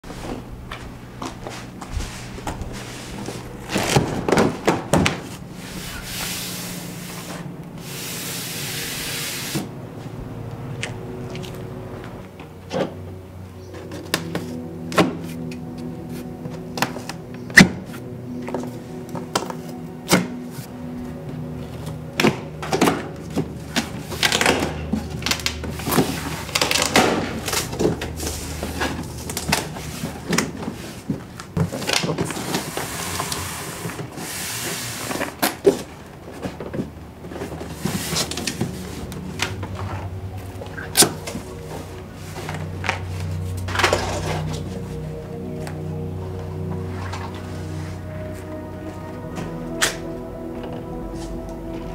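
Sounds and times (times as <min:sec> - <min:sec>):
cardboard rustling and scraping: 0:00.0 - 0:10.2, 0:21.7 - 0:45.7
background music: 0:00.0 - 0:51.9.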